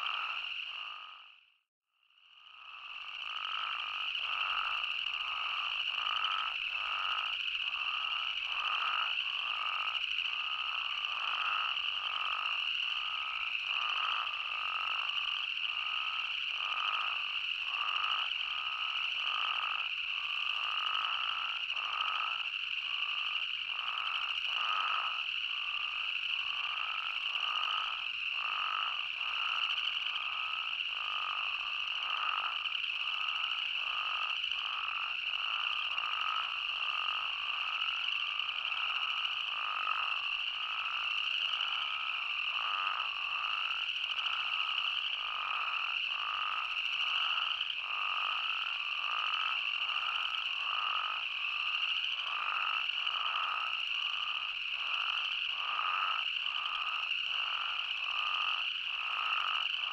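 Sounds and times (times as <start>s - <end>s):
toads calling in chorus: 0.0s - 1.3s, 2.6s - 59.9s.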